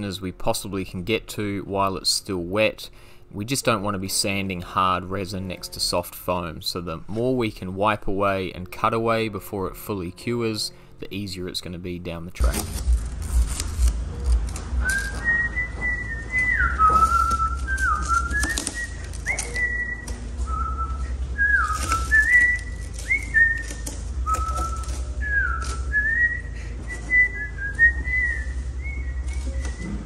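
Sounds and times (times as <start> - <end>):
person whistling a tune: 14.8 - 30.0.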